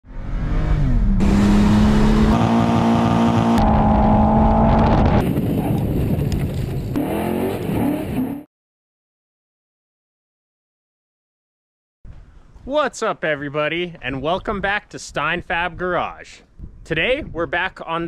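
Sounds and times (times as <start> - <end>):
car engine at high revs: 0.1 - 5.7, 6.9 - 8.4.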